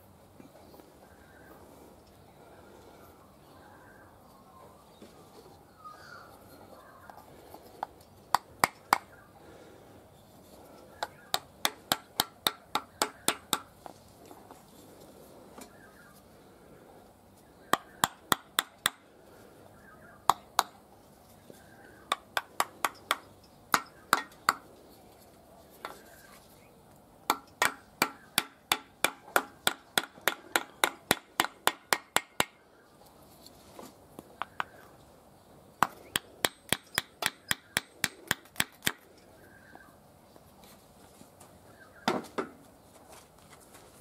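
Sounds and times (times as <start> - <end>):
hammer tapping on wooden dowel: 7.8 - 9.1, 11.0 - 13.7, 22.1 - 24.6, 27.3 - 32.6, 35.8 - 39.0.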